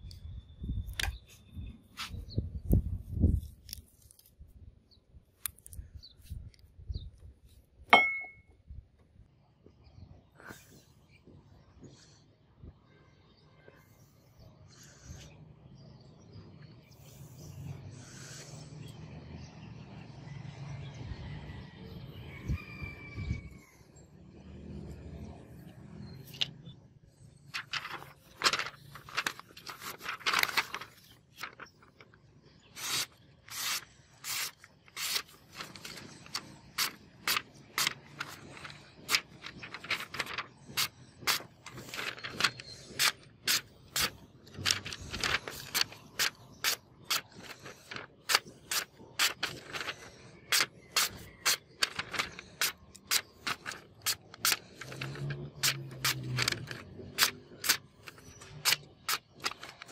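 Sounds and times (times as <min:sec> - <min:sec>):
knife slicing through paper: 0:27.6 - 0:31.6, 0:32.7 - 0:59.9.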